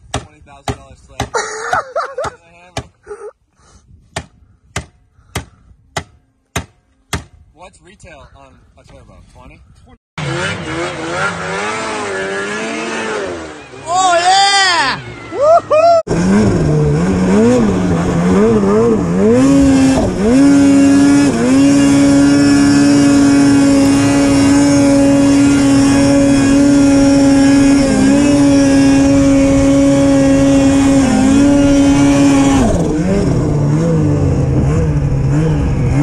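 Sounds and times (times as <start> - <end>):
snowmobile engine revving: 10.2 - 36.0.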